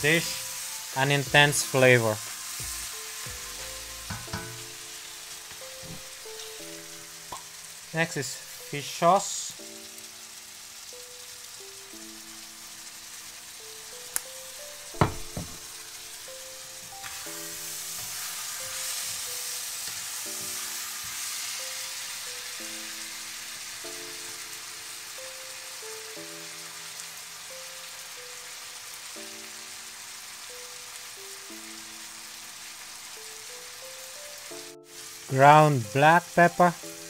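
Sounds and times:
background music with held notes: 0.0 - 37.0
food sizzling in a wok: 0.0 - 37.0
sharp knocks: 15.0 - 15.6.

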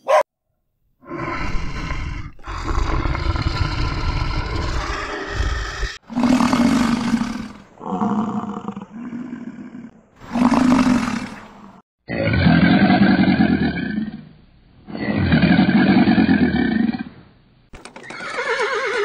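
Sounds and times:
alligator bellowing: 1.0 - 14.3.

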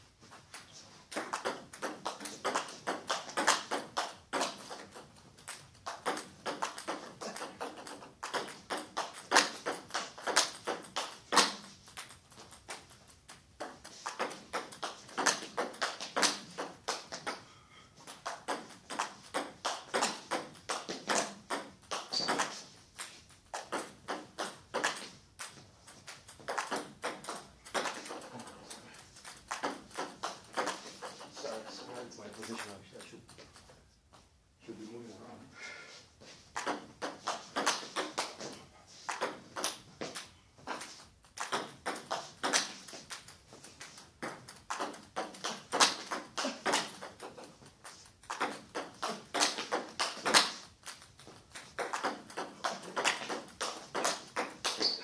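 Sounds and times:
table tennis ball clicks: 18.1 - 31.6.

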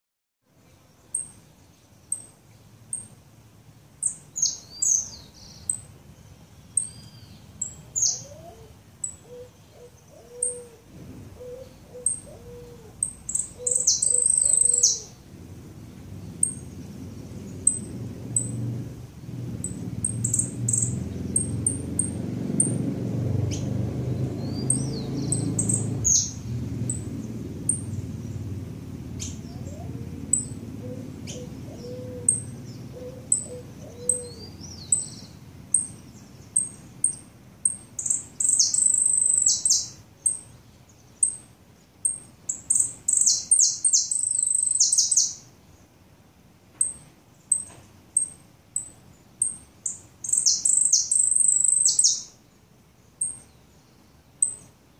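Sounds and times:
finch chirping and singing: 13.0 - 15.1, 23.5 - 27.1, 29.2 - 40.4, 50.2 - 52.3.

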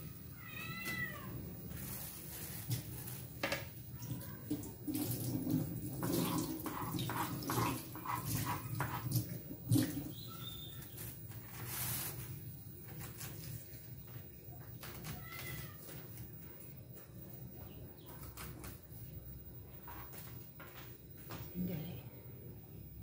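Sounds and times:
cat meowing: 0.0 - 1.4, 15.0 - 16.0.

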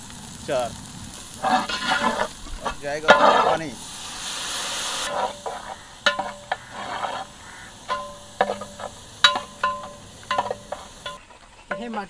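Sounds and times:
water hissing in hot pot: 0.0 - 11.2
metal ladle scraping and knocking pot: 1.4 - 3.8, 5.0 - 12.0.

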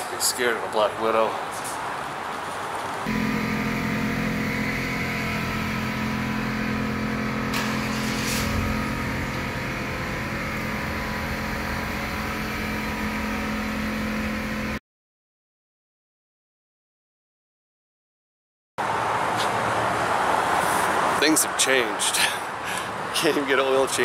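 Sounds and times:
steady mechanical hum: 0.0 - 14.8.

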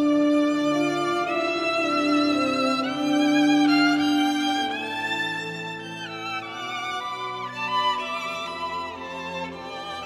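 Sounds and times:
bowed string instrument notes: 0.0 - 10.0.

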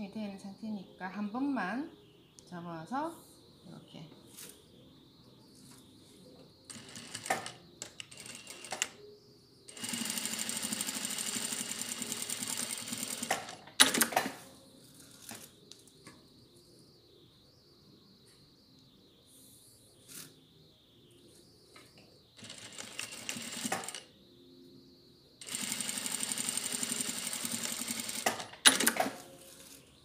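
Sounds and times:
sewing machine stitching: 6.7 - 9.0, 9.7 - 14.4, 22.4 - 24.0, 25.4 - 29.2.

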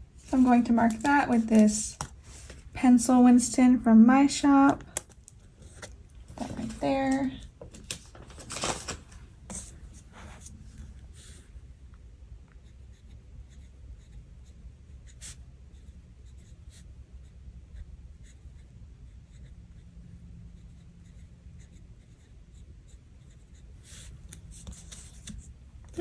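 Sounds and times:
pen scratching on paper: 12.6 - 19.9, 20.5 - 25.4.

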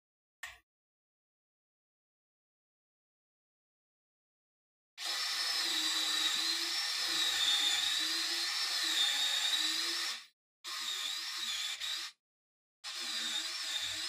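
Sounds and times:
cordless drill whining through wood: 5.0 - 12.2, 12.8 - 14.0.

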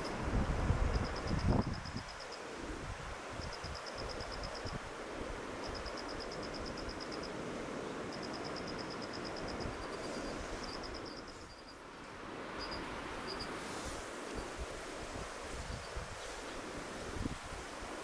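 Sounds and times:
wind noise on microphone: 0.0 - 7.7, 12.2 - 18.0.

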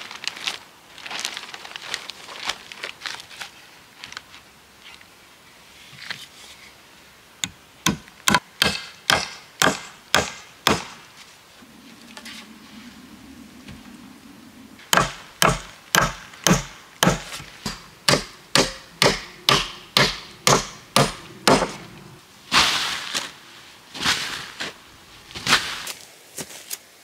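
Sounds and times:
hand tool striking wood: 7.4 - 11.0, 14.9 - 21.8
rough scraping noises: 11.0 - 26.6.

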